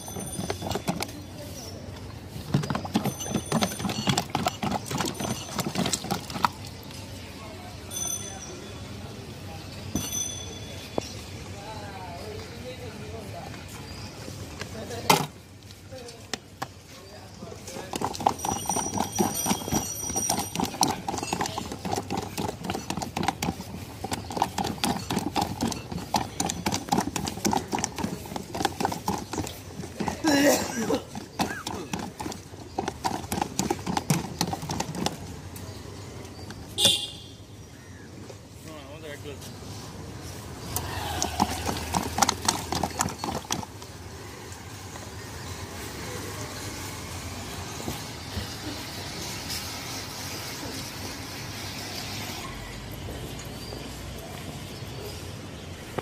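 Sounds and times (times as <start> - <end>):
street background noise: 0.0 - 56.0
stirrer clicking against glass: 2.6 - 6.6, 17.8 - 30.2, 41.2 - 43.8.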